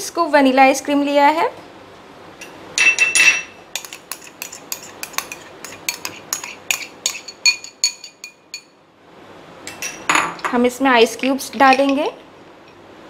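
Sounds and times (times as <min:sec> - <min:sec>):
metal spoon clinking on jar: 0:02.8 - 0:08.7, 0:11.2 - 0:12.1.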